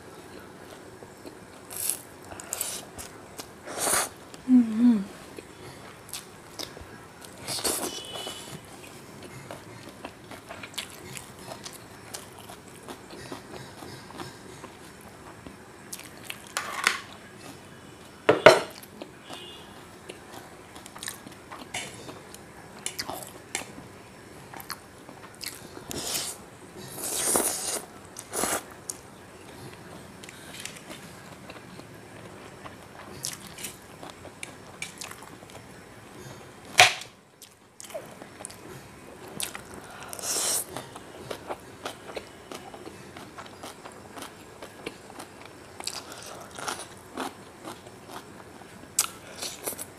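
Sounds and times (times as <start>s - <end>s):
chewing noodles: 37.4s - 49.9s.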